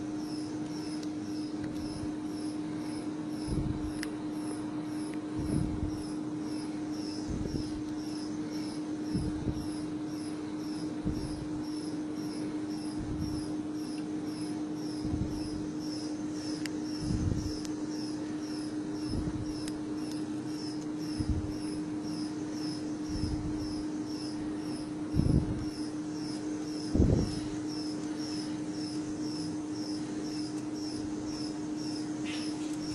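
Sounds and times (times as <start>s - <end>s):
testing machine humming: 0.0s - 32.9s.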